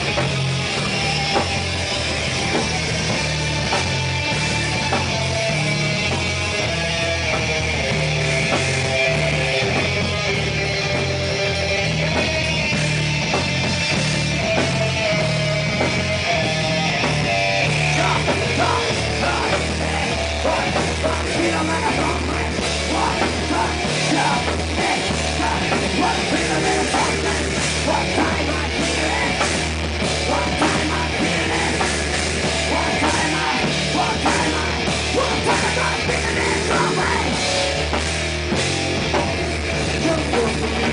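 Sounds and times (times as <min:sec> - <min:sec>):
heavy metal band playing: 0:00.0 - 0:40.9
melodic electric guitar line: 0:00.0 - 0:40.9
steady drumming: 0:00.0 - 0:40.9.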